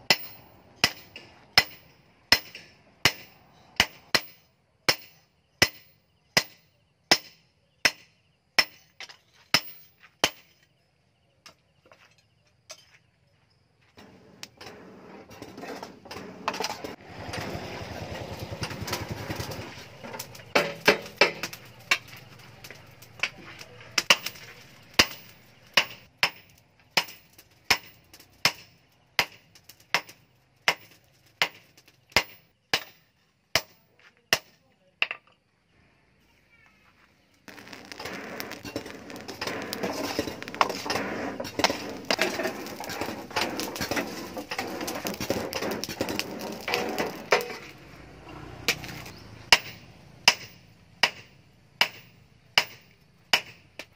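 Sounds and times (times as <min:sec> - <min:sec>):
hammer striking steel on anvil: 0:00.0 - 0:08.9, 0:48.7 - 0:53.6.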